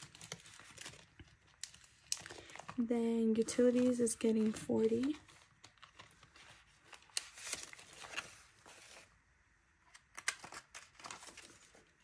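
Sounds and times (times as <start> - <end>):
plastic pouch crinkling: 0.0 - 8.6
banknotes rustling: 0.0 - 9.2, 10.2 - 12.0.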